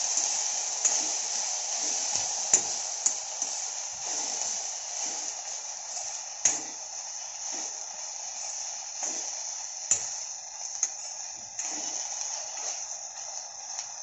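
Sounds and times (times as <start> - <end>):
sprouts sizzling in oil: 0.0 - 14.0.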